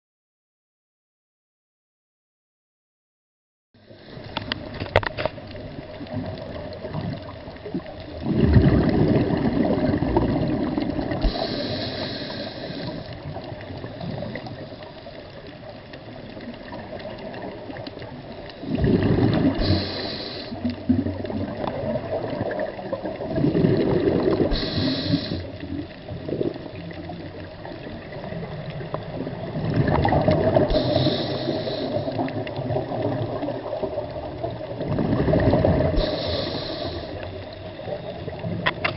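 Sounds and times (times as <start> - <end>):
underwater water noise: 3.8 - 38.9
rushes of bubbles: 4.0 - 38.9
swimmer breathing underwater: 11.1 - 13.2, 18.7 - 20.7, 23.7 - 25.6, 30.4 - 32.3, 35.3 - 37.5.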